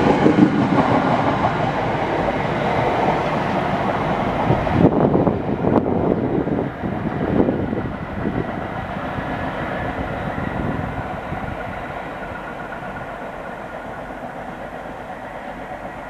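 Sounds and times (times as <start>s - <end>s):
electric train pulling away: 0.0s - 16.0s.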